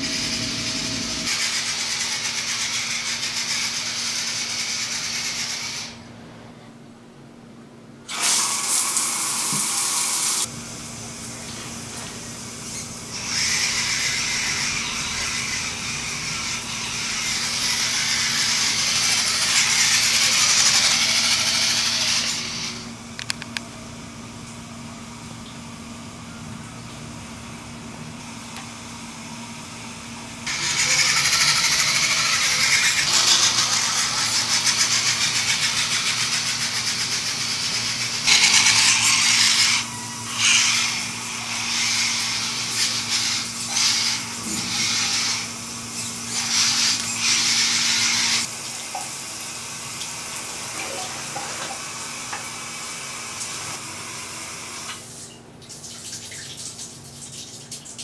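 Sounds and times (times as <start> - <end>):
shower spray hissing: 30.5 - 48.5.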